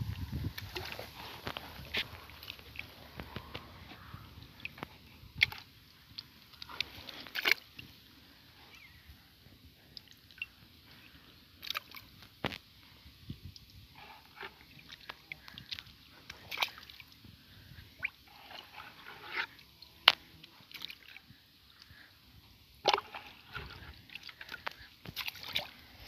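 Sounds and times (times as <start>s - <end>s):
water splashing into pond: 0.0s - 8.0s, 11.6s - 12.7s, 14.4s - 17.2s, 18.0s - 21.2s, 22.8s - 26.0s
water sloshing in bucket: 0.1s - 8.1s, 9.9s - 12.6s, 13.5s - 21.9s, 22.8s - 26.0s.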